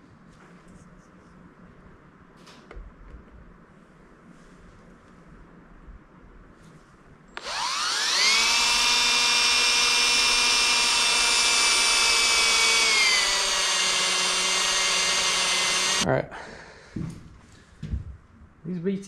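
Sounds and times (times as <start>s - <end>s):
cordless drill drilling: 7.4s - 16.0s.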